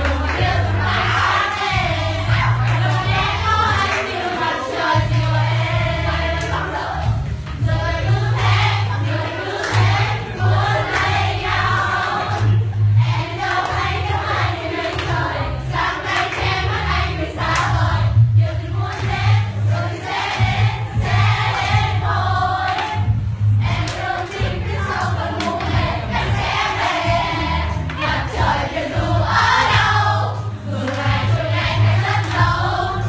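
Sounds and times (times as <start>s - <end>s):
pulsing bass beat: 0.0s - 3.8s, 5.0s - 9.2s, 9.8s - 14.4s, 15.0s - 30.4s, 31.0s - 33.0s
group of voices singing: 0.0s - 33.0s.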